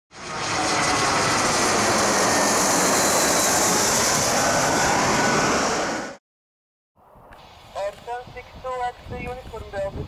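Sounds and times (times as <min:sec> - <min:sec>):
jet engines passing overhead: 0:00.1 - 0:06.2.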